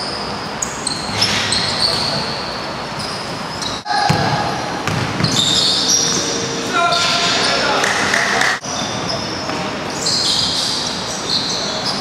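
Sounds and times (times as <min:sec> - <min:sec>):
sneakers squeaking on floor: 0:00.0 - 0:12.0
basketball bouncing: 0:03.9 - 0:05.4.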